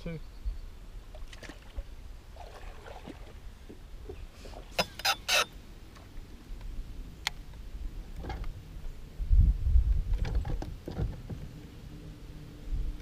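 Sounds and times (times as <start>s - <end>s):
steady low rumble: 5.6s - 13.0s.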